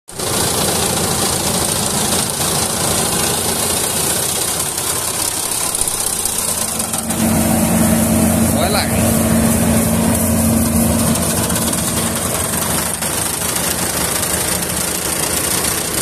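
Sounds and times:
cutting and threshing machinery: 0.2s - 16.0s
diesel engine droning: 0.2s - 16.0s
steady hum: 5.2s - 16.0s.

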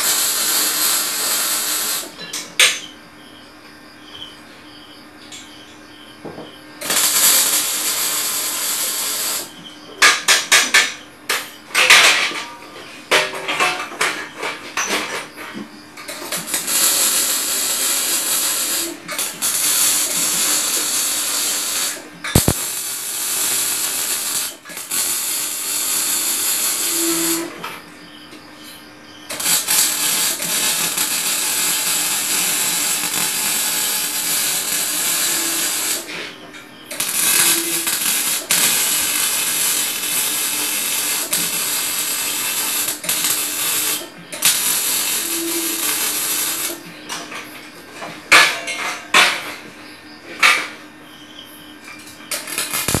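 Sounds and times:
arc welding hissing: 0.0s - 2.2s, 6.8s - 9.6s, 16.1s - 27.6s, 29.3s - 36.1s, 37.0s - 46.8s, 52.3s - 53.0s.

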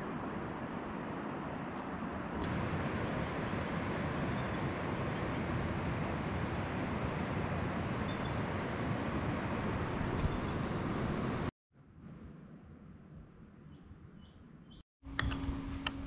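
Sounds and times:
wind buffeting microphone: 0.0s - 11.5s
small click: 15.1s - 16.0s.

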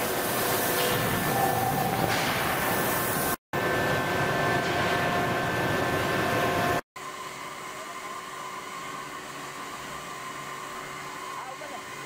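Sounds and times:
factory machinery noise: 0.0s - 6.8s.

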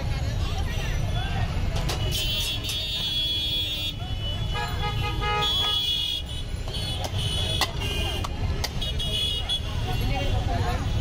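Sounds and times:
road traffic rumble: 0.0s - 11.0s
car horns sounding: 1.9s - 9.8s.

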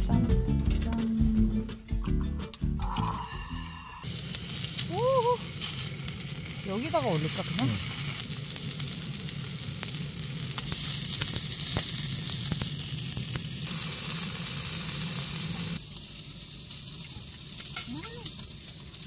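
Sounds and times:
food sizzling in a pan: 4.0s - 19.0s.

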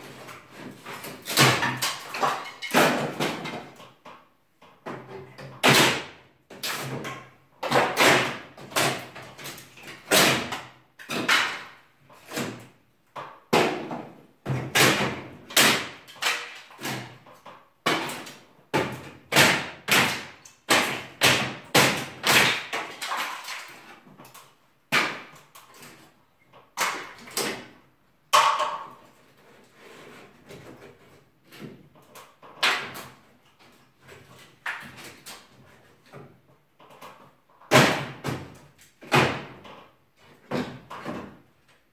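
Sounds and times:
banging on wooden boards: 0.1s - 23.6s, 26.6s - 29.2s, 37.2s - 39.8s.

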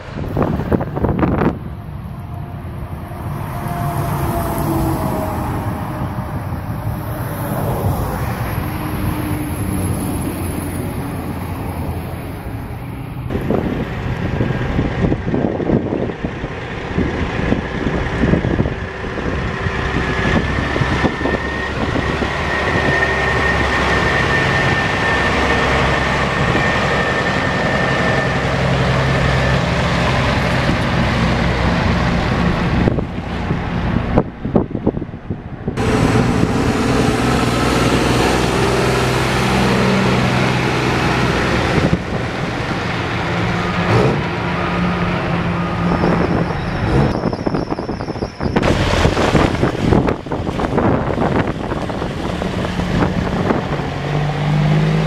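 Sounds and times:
steady high whine: 0.0s - 17.1s, 18.0s - 34.8s
diesel trucks driving past: 0.0s - 55.0s
wind buffeting microphone: 0.0s - 55.0s.

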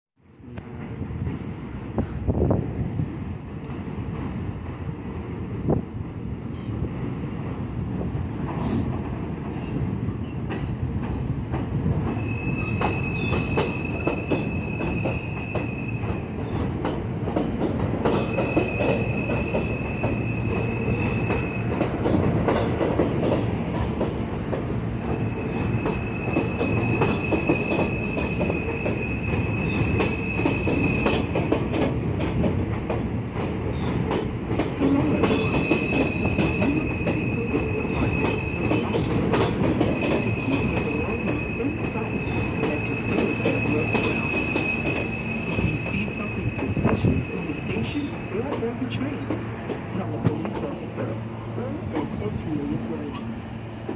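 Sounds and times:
train wheels rumbling: 0.2s - 53.9s
train wheels squealing: 12.1s - 16.7s, 17.5s - 22.0s, 22.6s - 23.4s, 25.1s - 31.7s, 35.1s - 48.6s.

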